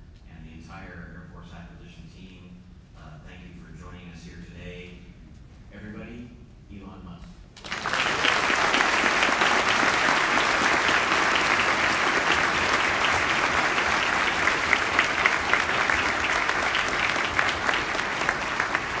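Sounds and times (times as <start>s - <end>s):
audience applauding: 7.6s - 19.0s.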